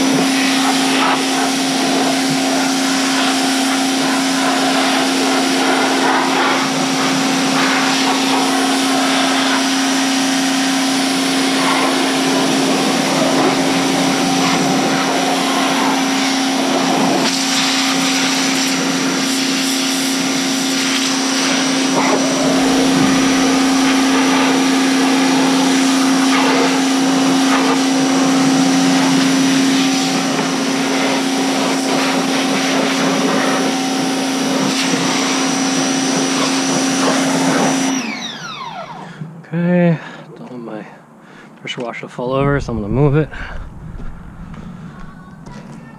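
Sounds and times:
high-pressure water spray hissing: 0.0 - 37.9
pressure washer motor whine: 0.0 - 39.4.

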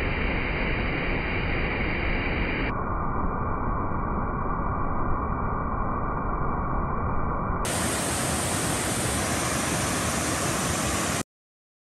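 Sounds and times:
waterfall rushing: 7.7 - 11.2.

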